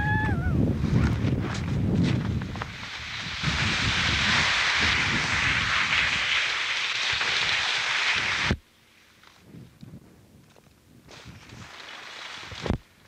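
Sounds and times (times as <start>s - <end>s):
wind buffeting microphone: 0.0s - 6.3s
hiss of wind and snow: 0.0s - 13.0s.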